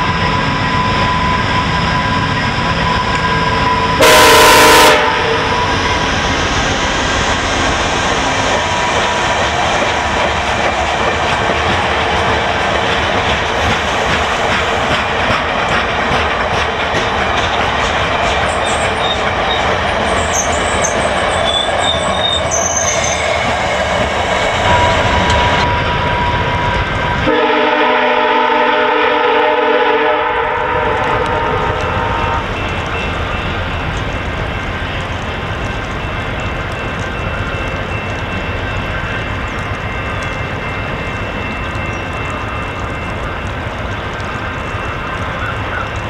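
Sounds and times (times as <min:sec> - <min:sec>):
faint high wheel squeal: 0:00.0 - 0:04.0, 0:18.4 - 0:23.6
train wheels rumbling on track: 0:00.0 - 0:46.0
train horn chord: 0:04.0 - 0:05.7, 0:27.2 - 0:32.6.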